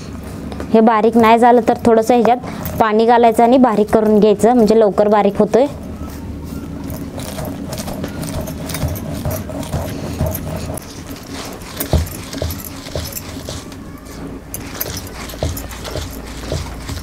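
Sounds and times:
stone roller scraping on stone slab: 6.8 - 13.8, 14.6 - 17.0.

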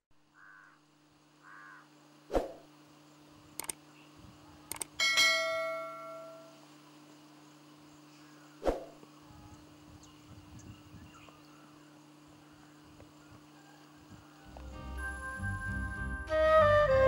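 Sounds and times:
steady low hum: 0.2 - 16.3
flute music: 14.6 - 17.0.

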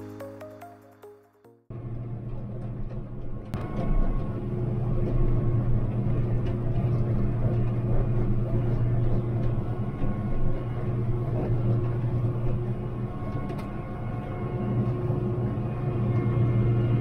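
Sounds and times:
engine droning steadily: 1.7 - 17.0.

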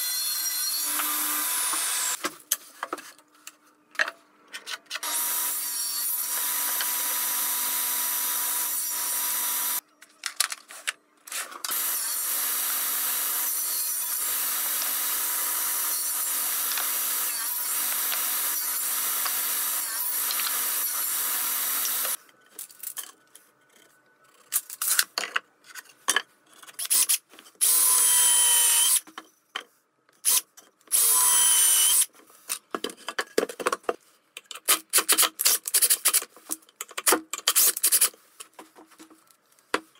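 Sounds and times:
table saw cutting timber: 0.0 - 2.2, 5.0 - 9.8, 11.7 - 22.2.

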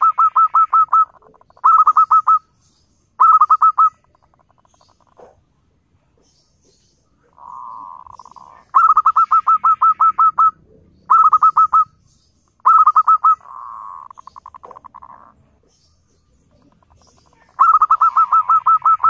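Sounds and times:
dove cooing: 0.0 - 2.4, 3.2 - 5.4, 6.6 - 12.0, 12.6 - 15.7, 16.5 - 19.0.

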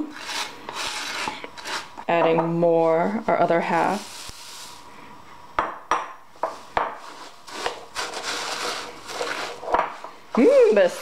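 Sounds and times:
spoon stirring sticky mixture: 7.0 - 9.8.

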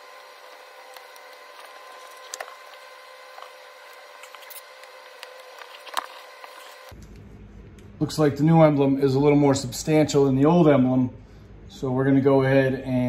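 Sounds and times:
tape crinkling: 0.0 - 7.0
background hum: 0.0 - 13.0.

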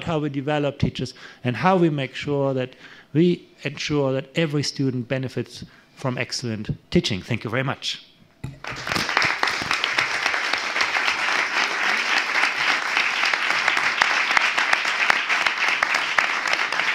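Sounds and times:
audience applauding: 8.6 - 16.9.

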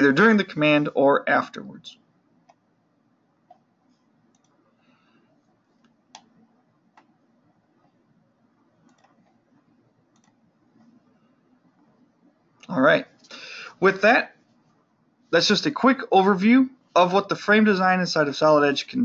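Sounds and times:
computer mouse clicks: 3.4 - 4.7, 5.4 - 7.2, 8.8 - 11.0.

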